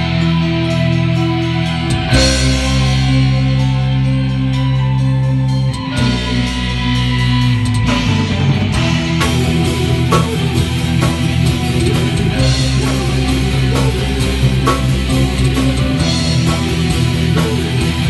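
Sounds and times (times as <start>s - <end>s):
electric guitars: 0.0s - 18.0s
keyboard sustained chords: 0.0s - 18.0s
drum kit steady beat: 5.8s - 18.0s.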